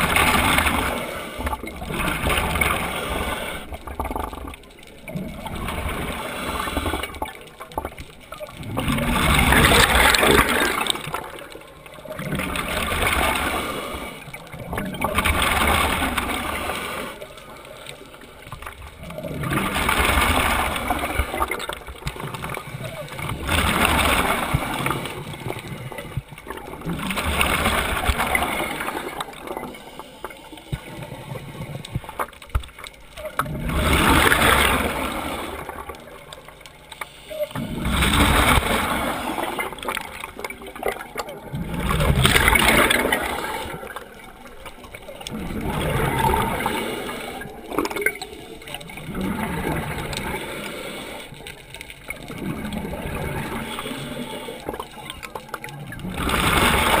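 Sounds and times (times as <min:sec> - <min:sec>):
gurgling exhaled bubbles: 0:00.0 - 0:57.0
regulator hissing inhale: 0:50.3 - 0:51.4, 0:53.6 - 0:54.9.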